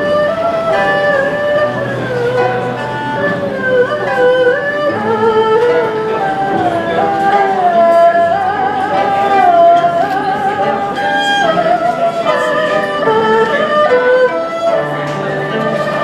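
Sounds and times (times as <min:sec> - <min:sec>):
bowed string lead melody: 0:00.0 - 0:16.0
plucked-string accompaniment: 0:00.0 - 0:16.0.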